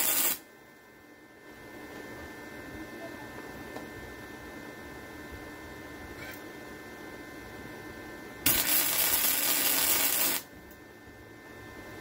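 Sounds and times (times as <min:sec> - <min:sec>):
welding arc crackling: 0:00.0 - 0:00.4, 0:08.4 - 0:10.5
steady hum: 0:00.0 - 0:12.0.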